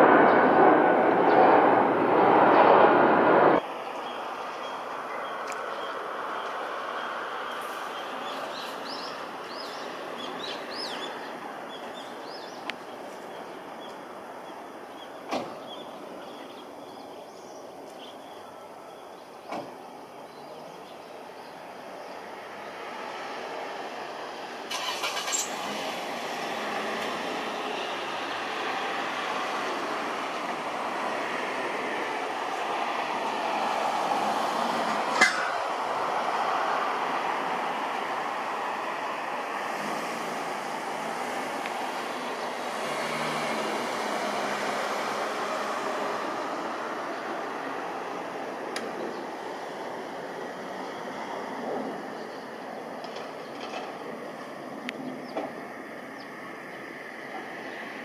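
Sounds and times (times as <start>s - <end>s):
jet engines rumbling: 0.0s - 17.9s, 18.6s - 58.0s
small birds chirping: 3.7s - 22.9s.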